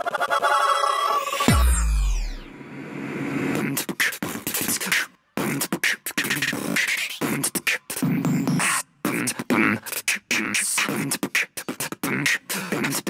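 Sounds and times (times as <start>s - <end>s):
falling electronic sweep: 0.1s - 3.6s
beatbox vocal percussion: 3.5s - 13.0s.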